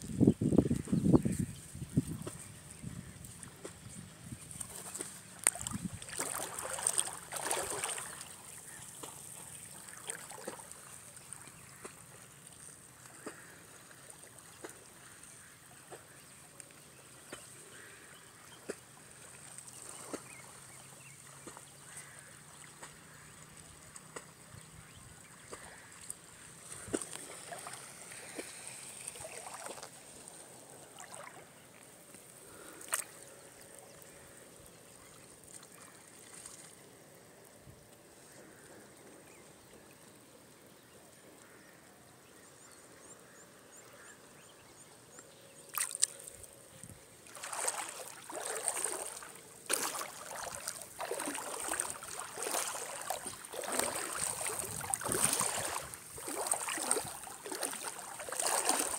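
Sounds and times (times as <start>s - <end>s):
ripples lapping against rocks: 2.0s - 16.4s, 25.3s - 34.2s, 45.7s - 46.4s, 47.2s - 58.9s
small water plops and splashes: 4.5s - 24.6s, 25.2s - 34.2s, 34.9s - 36.9s, 45.7s - 46.5s, 47.2s - 58.9s.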